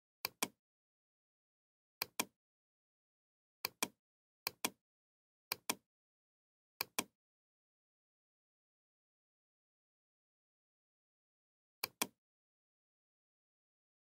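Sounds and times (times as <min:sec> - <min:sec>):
computer mouse button clicks: 0:03.6 - 0:04.8, 0:06.8 - 0:07.1, 0:11.8 - 0:12.2.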